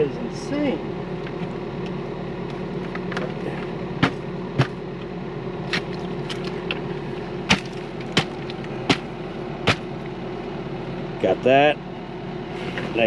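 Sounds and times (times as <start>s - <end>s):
excavator diesel engine idling: 0.0s - 13.0s
sharp knocks: 4.0s - 4.8s, 7.5s - 9.9s.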